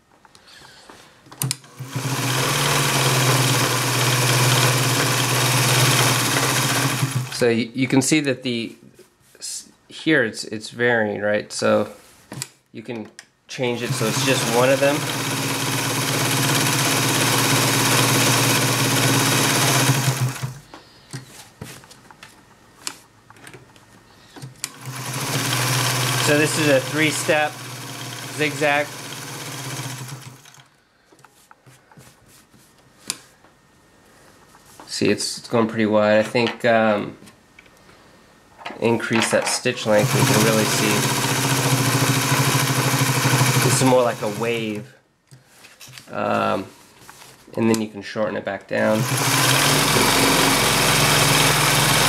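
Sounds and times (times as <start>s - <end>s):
sewing machine running: 1.6s - 7.4s, 13.8s - 20.6s, 24.7s - 30.6s, 39.8s - 44.8s, 48.8s - 52.0s.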